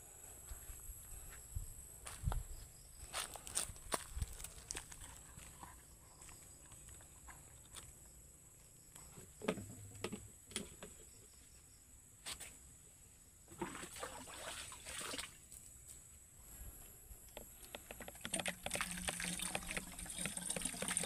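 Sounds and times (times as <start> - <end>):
water sloshing and splashing: 13.5 - 15.5, 18.2 - 21.0.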